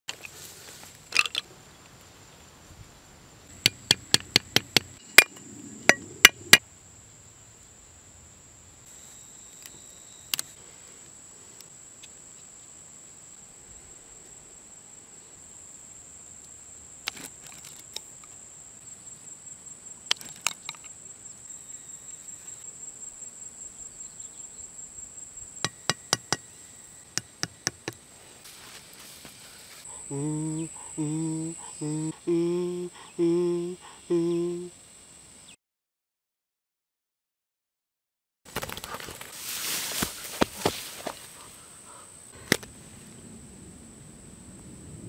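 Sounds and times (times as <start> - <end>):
high insect drone: 0.3 - 35.6
cleaver chopping bamboo: 3.6 - 5.3, 25.7 - 26.4, 27.2 - 28.0.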